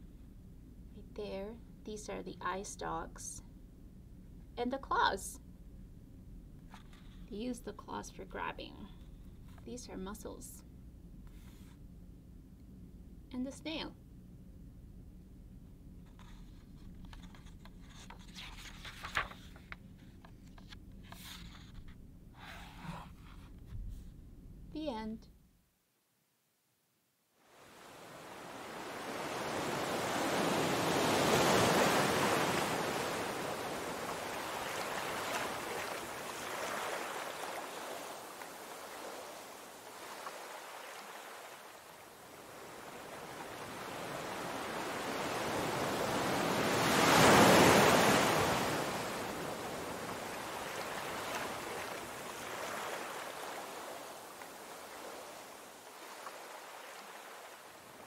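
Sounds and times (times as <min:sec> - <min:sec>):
surf breaking over rocks: 0:27.5 - 0:58.0.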